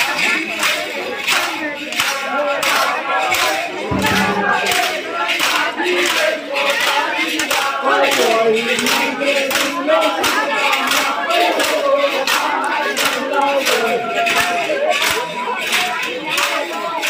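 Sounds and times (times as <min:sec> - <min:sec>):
men chanting and shouting: 0:07.7 - 0:17.0.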